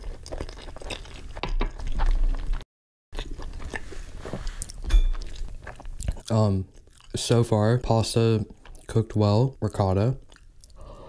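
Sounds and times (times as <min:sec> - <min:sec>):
close chewing with wet mouth sounds: 0:00.0 - 0:02.6, 0:03.2 - 0:07.5, 0:08.4 - 0:09.0, 0:10.2 - 0:10.9.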